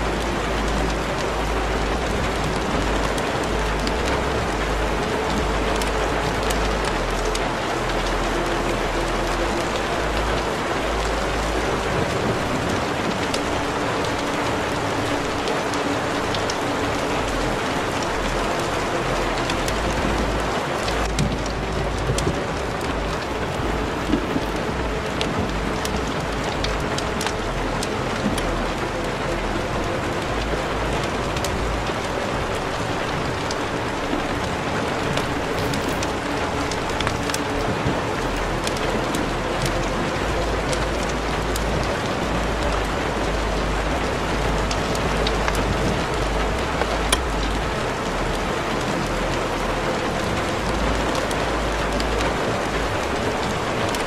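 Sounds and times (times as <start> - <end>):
low rumble: 0.0 - 54.0
rain-like hiss: 0.0 - 54.0.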